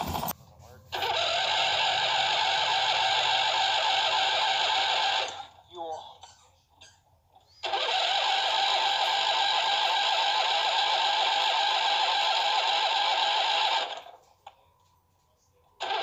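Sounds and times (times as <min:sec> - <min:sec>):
starter motor cranking engine: 0:00.0 - 0:05.6, 0:07.5 - 0:14.1, 0:15.8 - 0:16.0.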